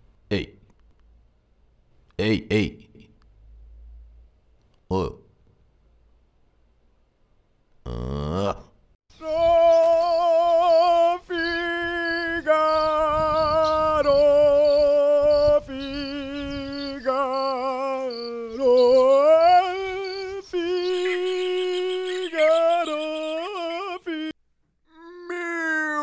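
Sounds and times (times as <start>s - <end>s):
person singing vocal warm-up notes: 9.2s - 24.4s.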